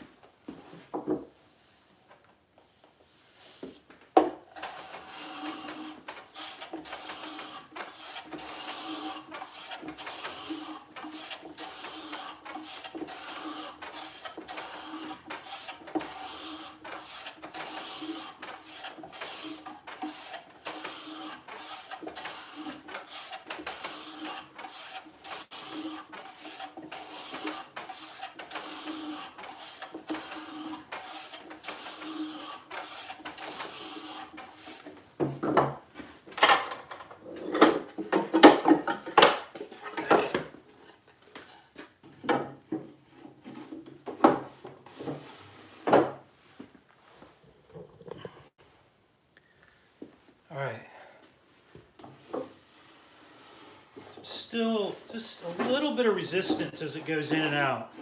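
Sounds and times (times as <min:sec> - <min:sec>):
hand plane shaving wood: 0:02.8 - 0:35.0, 0:42.5 - 0:46.2, 0:52.1 - 0:58.0.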